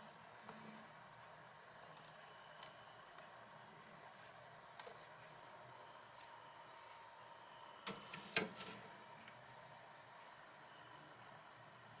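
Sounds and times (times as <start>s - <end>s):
cricket chirping: 1.0s - 2.0s, 3.0s - 3.2s, 3.8s - 6.4s, 7.9s - 8.2s, 9.4s - 10.6s, 11.2s - 11.5s.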